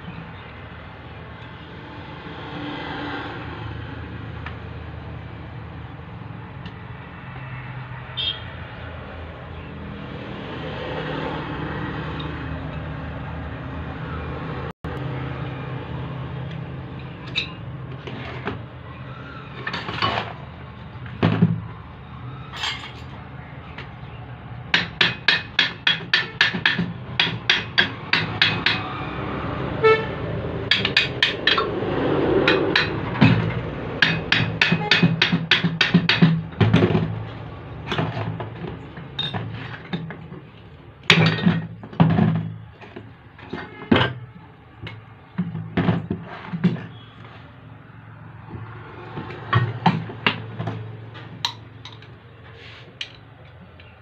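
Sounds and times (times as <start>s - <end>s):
hammer striking metal: 24.7s - 29.0s, 30.6s - 31.7s, 32.4s - 36.6s.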